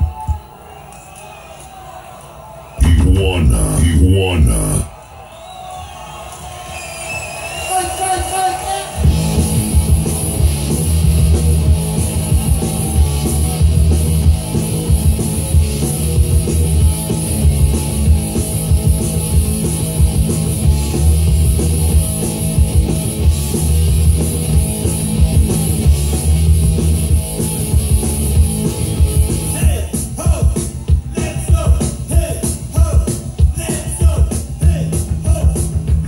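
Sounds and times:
loud rock music with drums: 8.2s - 36.0s.

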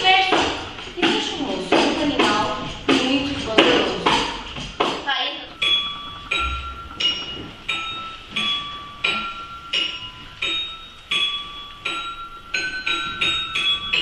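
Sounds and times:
glockenspiel melody: 5.5s - 14.0s.

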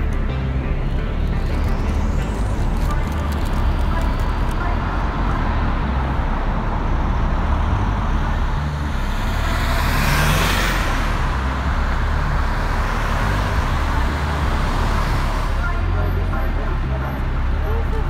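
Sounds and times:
traffic rushing past: 0.0s - 18.0s
vehicle passing close: 1.2s - 15.6s.

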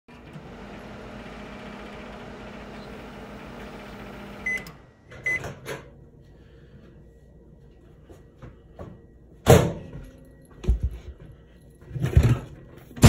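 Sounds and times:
microwave oven humming: 0.1s - 6.7s
microwave beeps: 2.5s - 5.6s.

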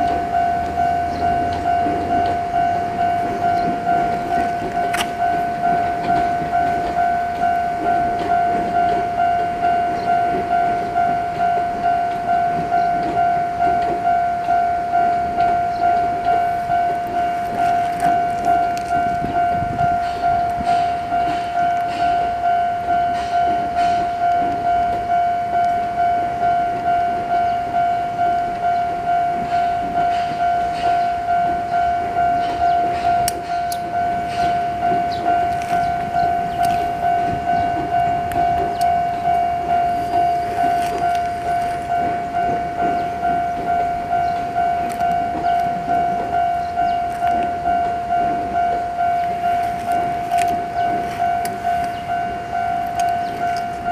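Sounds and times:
level-crossing warning bell: 0.0s - 53.9s
train wheels rumbling on rail: 0.0s - 53.9s
sharp wheel clicks: 0.1s - 9.6s, 32.8s - 43.7s, 49.1s - 53.9s.

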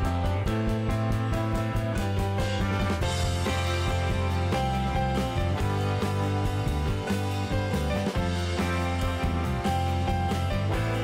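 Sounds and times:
background music with bass line: 0.0s - 11.0s.

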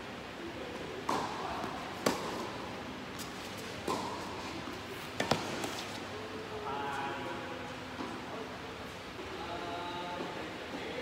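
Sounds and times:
rackets striking tennis ball: 1.0s - 2.6s, 5.1s - 5.8s
ball bouncing on hard court: 1.1s - 2.4s.

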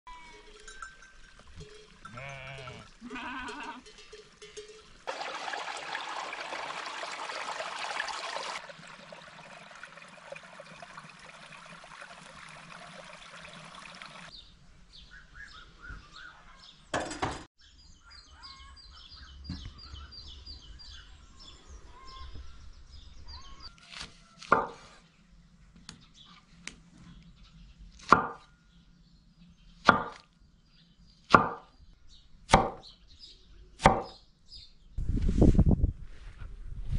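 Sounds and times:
sheep bleating: 2.1s - 3.9s
cleaver chopping on wooden board: 24.4s - 24.9s, 28.0s - 28.4s, 29.9s - 30.2s, 31.3s - 31.7s, 32.5s - 32.8s, 33.8s - 34.2s.

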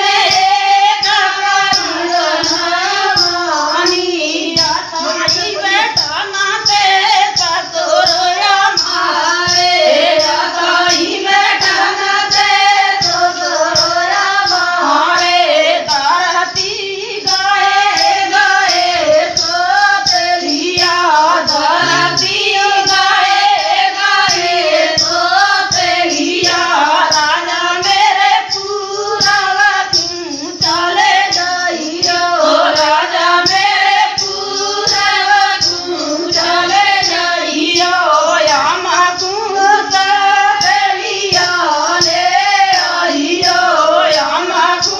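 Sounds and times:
fast percussion beat: 0.0s - 44.9s
women singing folk song: 0.0s - 44.9s.

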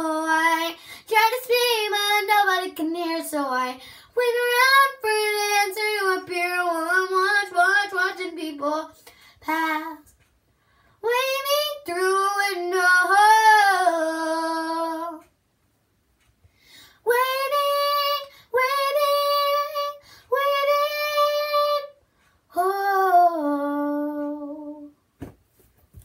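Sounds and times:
girl singing alone: 0.0s - 10.2s, 11.0s - 15.3s, 17.0s - 25.0s.

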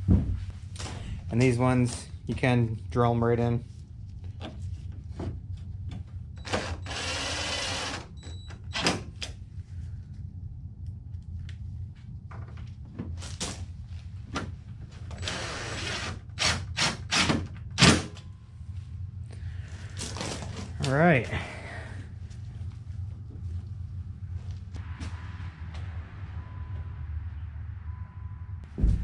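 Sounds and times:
low steady hum: 0.0s - 29.0s
cordless drill running: 6.4s - 8.0s, 15.2s - 17.3s.

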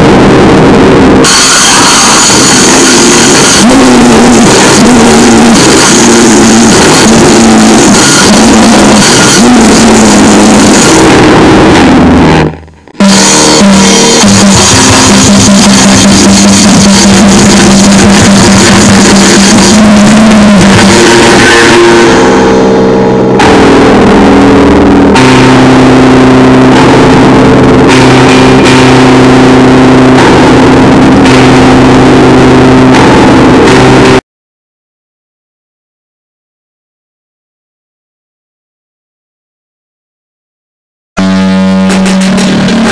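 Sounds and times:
harsh distorted noise music: 0.0s - 34.2s, 41.2s - 42.9s.

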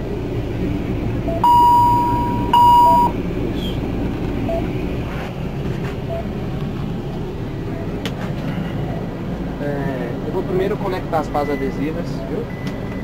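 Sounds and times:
long high monitor tone: 1.2s - 3.2s
short lower heartbeat beeps: 1.3s - 3.2s.

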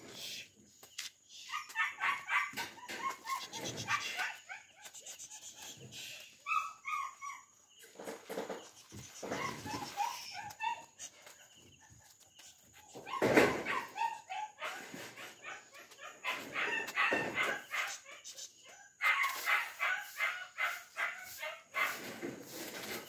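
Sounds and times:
plastic bottle dragged on concrete: 21.8s - 23.0s.

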